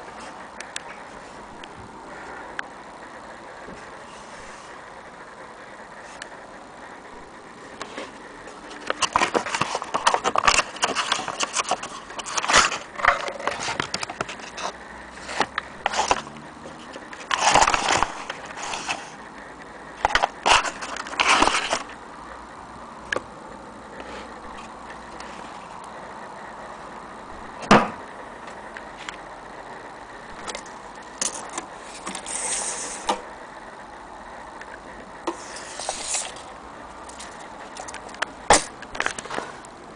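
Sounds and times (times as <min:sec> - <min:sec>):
paper rustling and crinkling: 0:07.8 - 0:19.2, 0:20.0 - 0:22.0.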